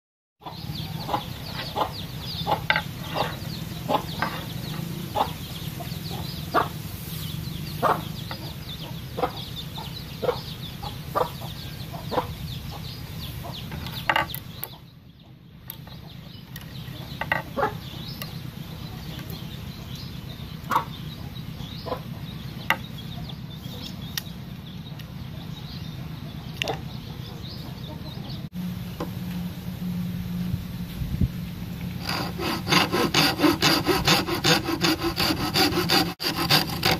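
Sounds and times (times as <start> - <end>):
chickens clucking: 0.4 - 28.5
steady low hum: 17.8 - 36.9.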